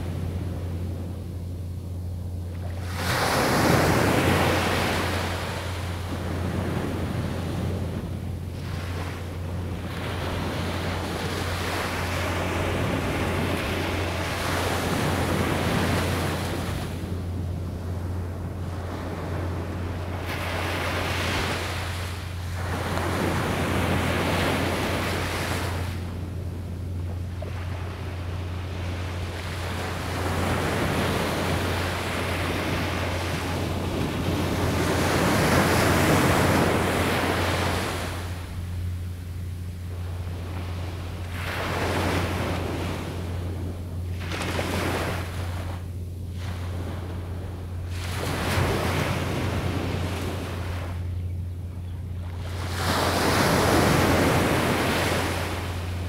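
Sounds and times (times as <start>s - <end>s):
wind on microphone rumble: 0.0s - 56.0s.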